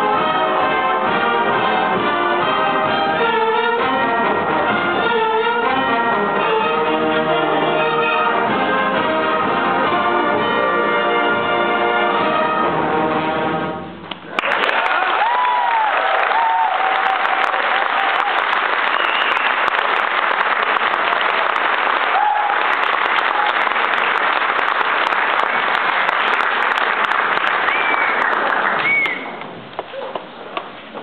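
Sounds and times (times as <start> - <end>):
audience applauding: 14.1 - 30.3
cheers and whistles: 14.4 - 19.8, 22.1 - 23.6, 27.5 - 29.4.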